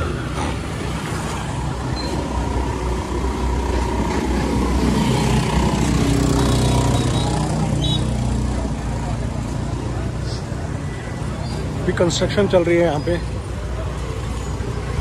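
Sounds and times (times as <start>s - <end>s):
general traffic noise: 0.0s - 15.0s
motor scooters riding past: 2.4s - 11.6s.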